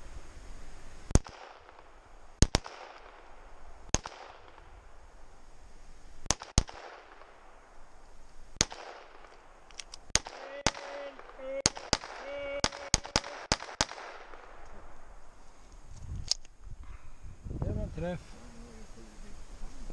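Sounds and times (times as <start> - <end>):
handgun shots echoing: 1.1 - 3.2, 3.9 - 4.7, 6.3 - 7.4, 8.6 - 14.7.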